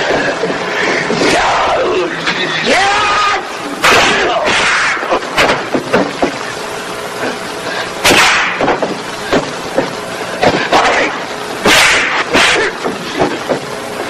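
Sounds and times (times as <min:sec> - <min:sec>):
punch and kick whacks: 0:03.8 - 0:05.8, 0:08.0 - 0:09.5, 0:10.4 - 0:13.4.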